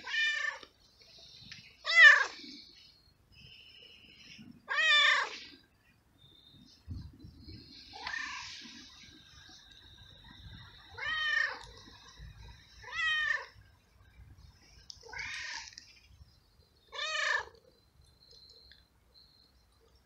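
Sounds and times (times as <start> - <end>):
cat meowing: 4.7 - 5.4, 8.0 - 8.5, 11.0 - 11.7, 12.8 - 13.6, 15.0 - 15.7, 16.9 - 17.5.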